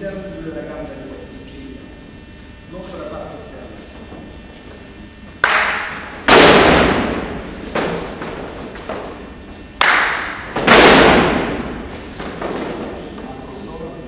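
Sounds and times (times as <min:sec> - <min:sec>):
feet stamping on hall floor: 0:06.3 - 0:13.4.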